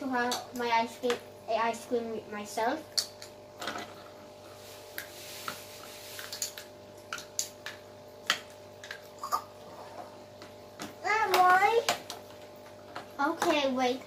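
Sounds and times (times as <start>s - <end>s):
faint steady hum: 0.0s - 14.0s.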